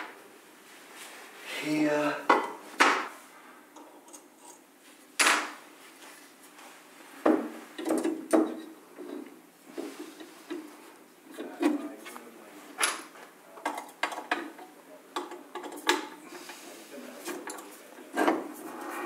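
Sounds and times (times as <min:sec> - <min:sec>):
knocks and clatter of parts handled: 0:07.3 - 0:10.7, 0:12.8 - 0:16.2, 0:17.2 - 0:18.5.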